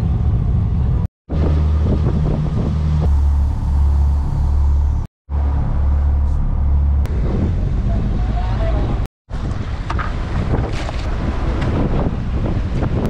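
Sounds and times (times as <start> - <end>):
boat engine droning: 1.3 - 9.0.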